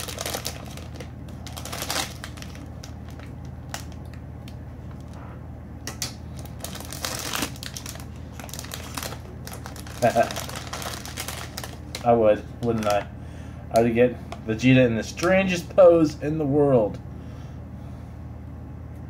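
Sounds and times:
foil bag crinkling: 0.0 - 4.2, 6.3 - 13.1.

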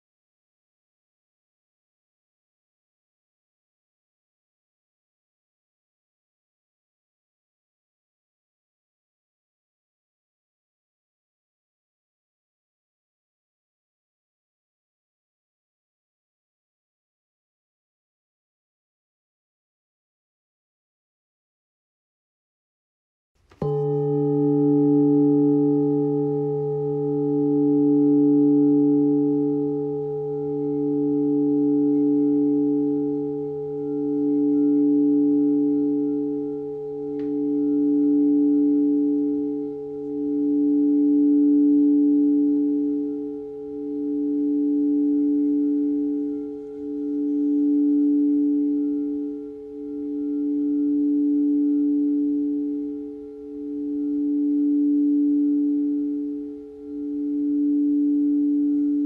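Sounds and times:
singing bowl ringing: 23.5 - 59.0
low hum: 23.6 - 59.0.

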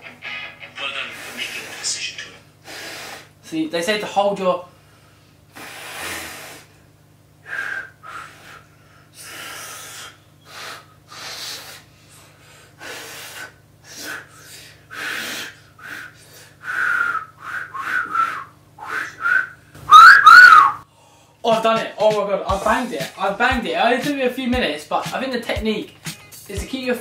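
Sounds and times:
finger whistle attempts: 7.5 - 8.6, 16.7 - 20.8.

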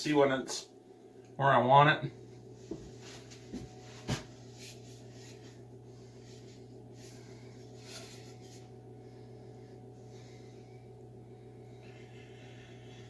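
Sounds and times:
person breathing: 5.2 - 13.0.

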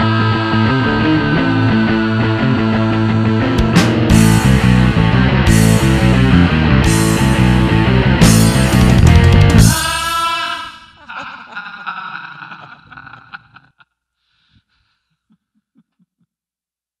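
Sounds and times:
loud rock music with guitar: 0.0 - 9.8
guitar chord ringing: 0.6 - 9.7.

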